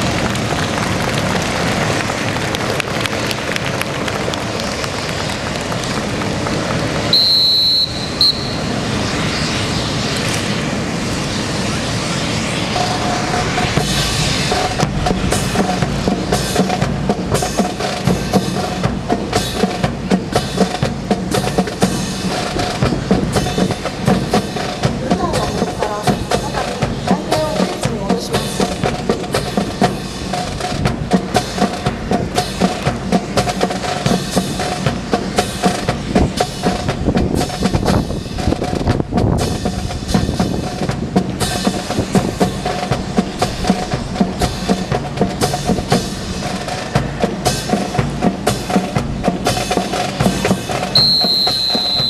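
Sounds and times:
marching snare and bass drum: 13.6 - 52.0
high steady tone: 50.9 - 52.0.

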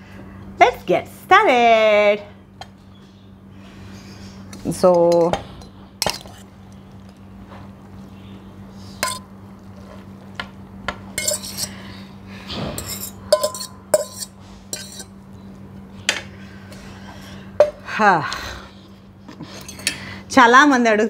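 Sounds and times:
metal spoon clinking on steel container: 9.0 - 9.3, 11.2 - 11.7, 12.8 - 15.1.

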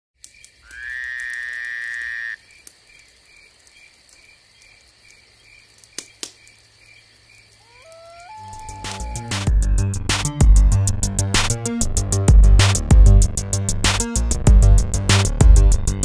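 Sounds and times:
cricket-like chirping: 0.2 - 9.3.

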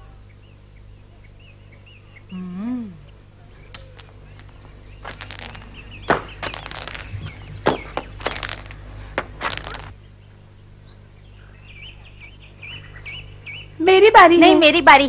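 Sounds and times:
birds chirping: 0.0 - 15.0
low steady hum: 0.0 - 15.0
sharp knocks: 6.1 - 8.6.

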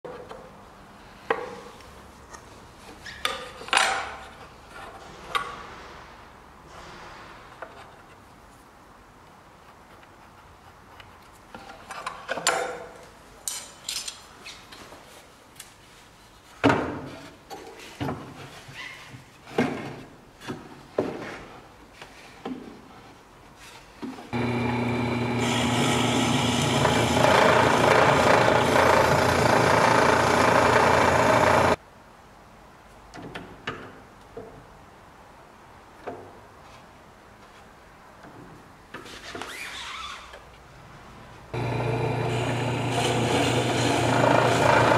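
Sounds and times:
drill press motor humming: 24.4 - 31.8, 41.6 - 44.9.

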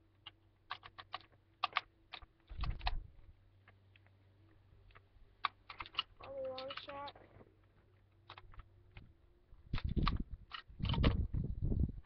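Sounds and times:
plastic toy blaster clicks: 0.7 - 3.0, 5.4 - 7.2, 9.7 - 11.2.

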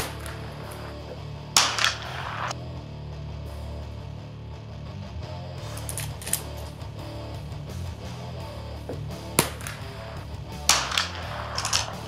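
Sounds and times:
rifle shot: 0.0 - 2.6, 5.7 - 6.8, 8.9 - 12.0
guitar music: 0.0 - 12.0.

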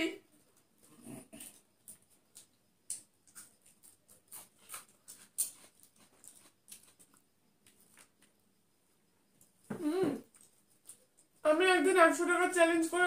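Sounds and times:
chewing and finger smacks: 1.4 - 8.4, 10.3 - 11.4.

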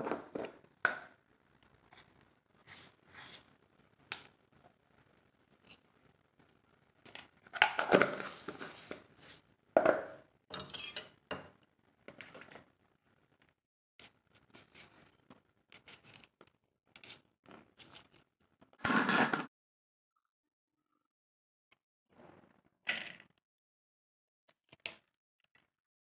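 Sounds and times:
kitchen utensils clattering: 9.8 - 11.5.

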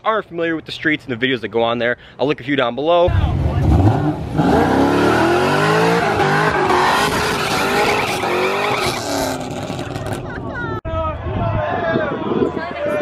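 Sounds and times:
car engine revving: 3.1 - 10.2
tires squealing: 3.4 - 10.3.

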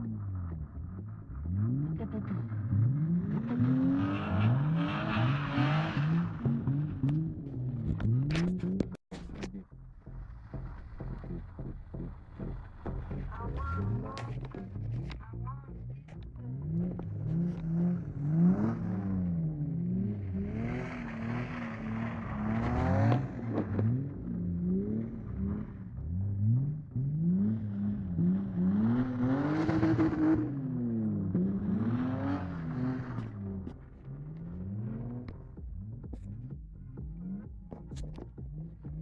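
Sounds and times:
car engine revving: 0.0 - 39.0.

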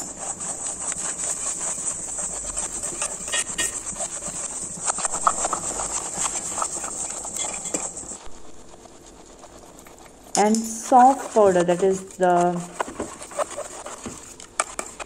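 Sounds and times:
spoon scraping steel pot: 2.8 - 4.1, 5.0 - 8.0.

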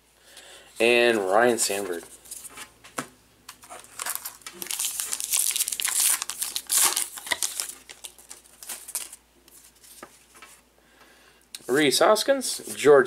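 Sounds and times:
card wrapper tearing and rustling: 3.6 - 10.5.

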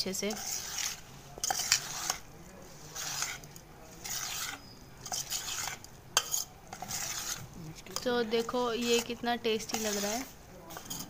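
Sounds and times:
spoon scraping in steel bowl: 0.0 - 11.0
spoon clinking against bowl: 6.2 - 6.8.

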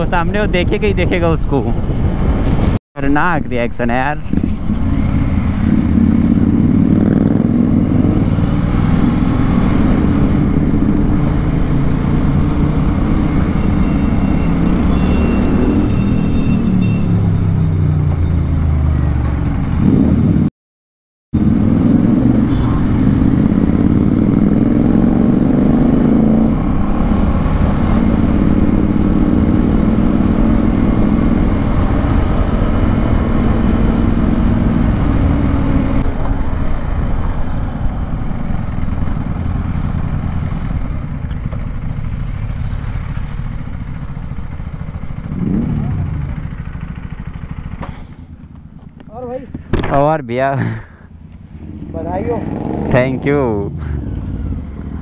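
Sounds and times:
motorcycle engine running: 21.4 - 50.0.

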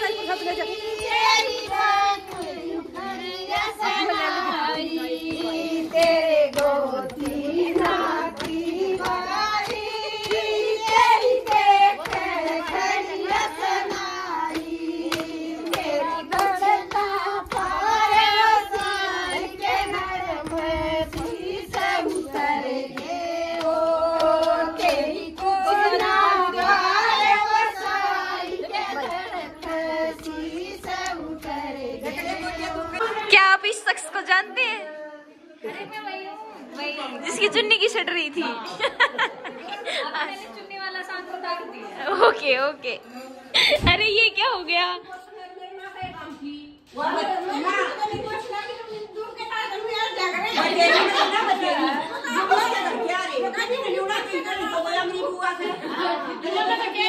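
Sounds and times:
women singing folk song: 0.0 - 35.8
hand claps: 0.1 - 32.4.

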